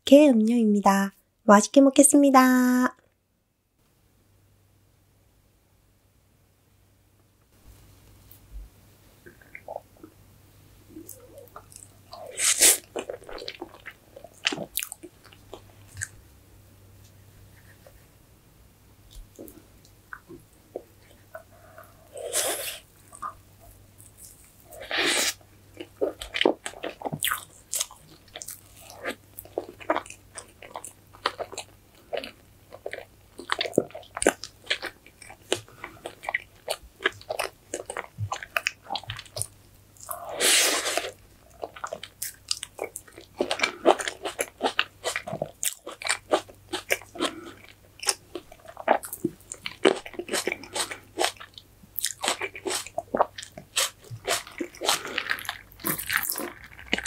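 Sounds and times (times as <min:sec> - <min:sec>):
close chewing and biting: 0:11.0 - 0:16.2, 0:24.0 - 0:57.0.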